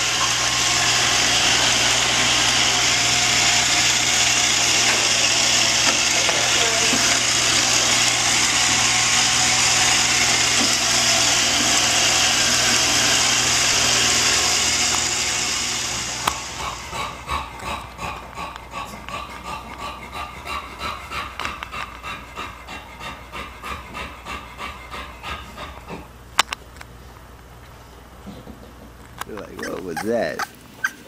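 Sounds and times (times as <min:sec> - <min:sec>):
robot vacuum cleaner whirring: 0:00.0 - 0:19.5
dog panting: 0:16.6 - 0:26.1, 0:29.4 - 0:31.0.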